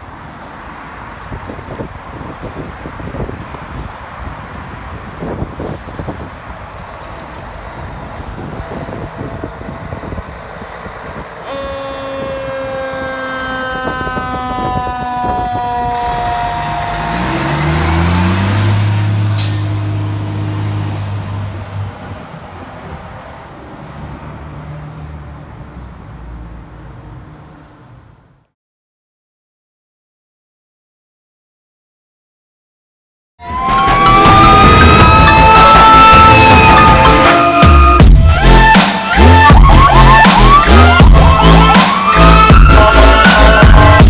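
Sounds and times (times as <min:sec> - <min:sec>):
diesel engine passing: 0:00.1 - 0:28.4, 0:33.4 - 0:44.0
fire engine horn blast: 0:11.4 - 0:18.6, 0:33.4 - 0:44.0.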